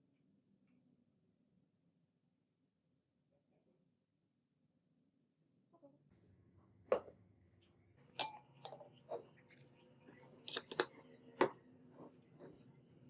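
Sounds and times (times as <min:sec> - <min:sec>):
glassware taps and clinks: 0:06.9 - 0:07.2, 0:08.2 - 0:09.3.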